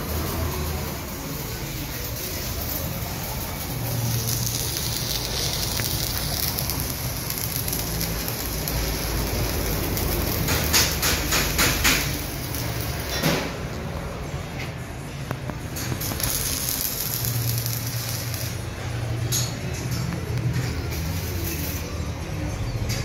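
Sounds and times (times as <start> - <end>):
welding arc crackling: 0.0 - 13.8, 15.3 - 22.0
sharp welding pops: 4.0 - 13.6, 15.4 - 18.6.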